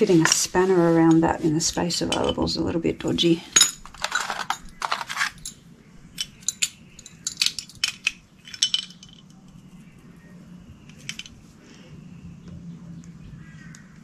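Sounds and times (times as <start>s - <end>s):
metal spanner clinking: 3.6s - 5.6s, 6.2s - 9.4s, 10.9s - 11.4s.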